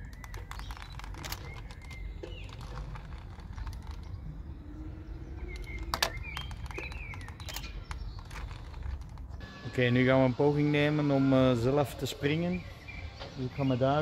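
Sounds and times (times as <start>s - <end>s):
small birds chirping: 0.0s - 9.4s.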